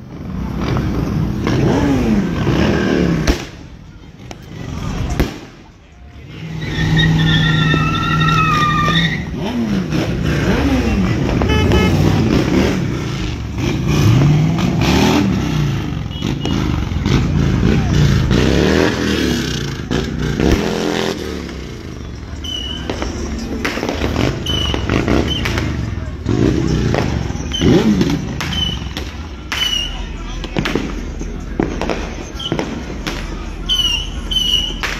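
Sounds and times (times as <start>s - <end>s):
car engine revving hard: 0.5s - 3.4s, 6.4s - 21.6s, 22.9s - 28.5s
sharp pops: 22.8s - 25.9s.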